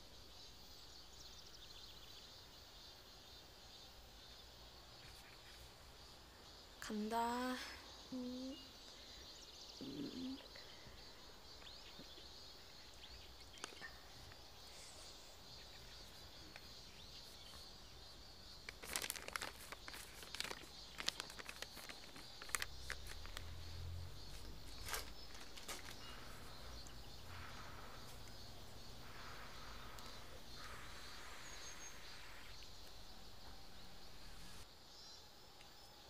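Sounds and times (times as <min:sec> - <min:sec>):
small clicks and rustles: 0:13.4 - 0:14.4, 0:18.5 - 0:27.6.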